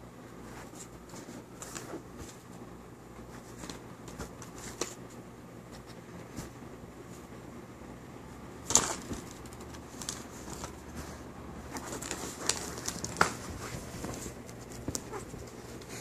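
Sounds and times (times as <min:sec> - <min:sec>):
cat pawing at cards: 0:11.7 - 0:16.0.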